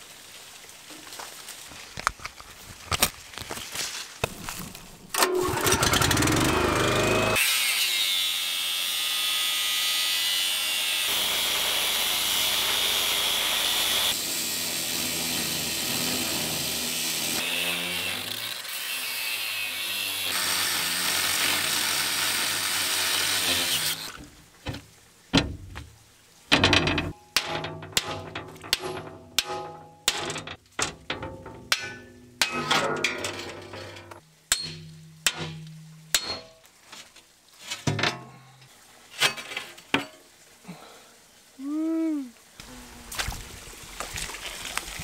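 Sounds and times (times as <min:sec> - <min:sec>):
angle grinder cutting steel: 0:05.2 - 0:24.1.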